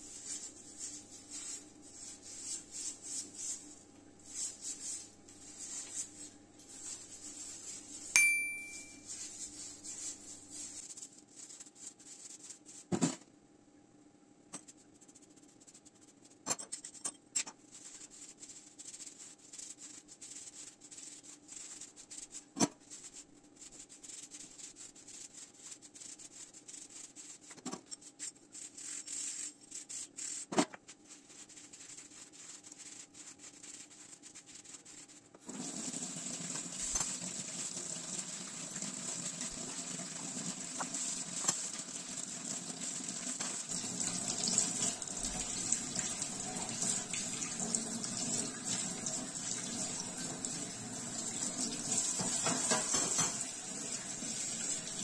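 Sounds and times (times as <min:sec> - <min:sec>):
short ringing ding: 0:08.2 - 0:09.1
tap water running: 0:35.5 - 0:55.0.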